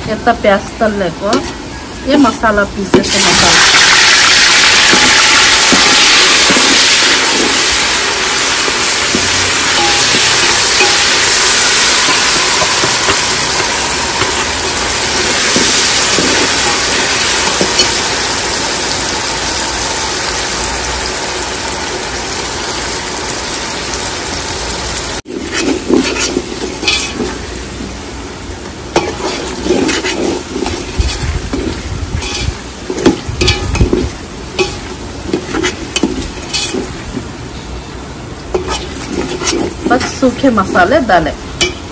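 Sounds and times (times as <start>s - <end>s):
onions sizzling in hot oil: 0.0s - 41.9s
metal spoon stirring and knocking pot: 4.8s - 18.0s, 25.3s - 27.4s, 28.9s - 37.0s, 38.5s - 40.4s, 41.6s - 41.9s.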